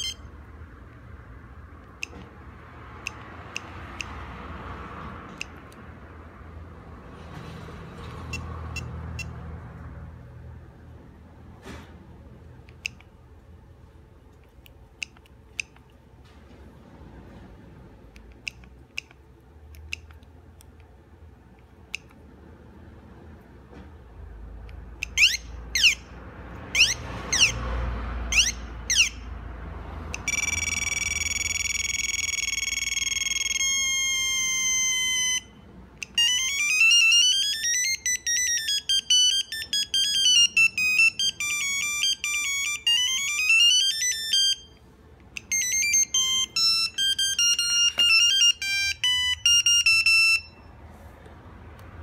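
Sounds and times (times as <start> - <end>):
fast bleeping ringtone melodies: 0.0 - 0.3, 30.2 - 44.8, 45.4 - 50.7
held electronic tone: 0.0 - 0.4, 30.1 - 44.8, 45.4 - 50.7.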